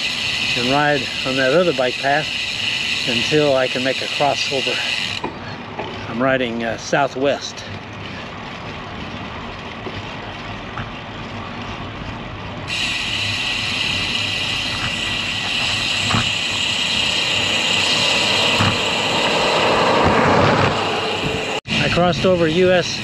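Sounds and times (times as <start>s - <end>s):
steady high-pitched hiss: 0.0s - 5.2s, 12.7s - 20.1s
bike road noise: 0.0s - 23.0s
highway traffic: 0.0s - 23.0s
wind noise: 13.8s - 23.0s.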